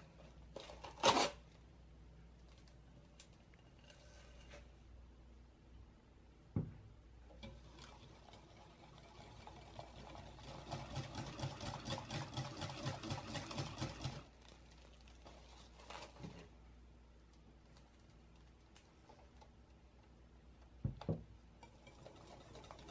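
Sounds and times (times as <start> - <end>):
whisk beating cream in glass bowl: 7.4 - 14.3, 21.6 - 22.9.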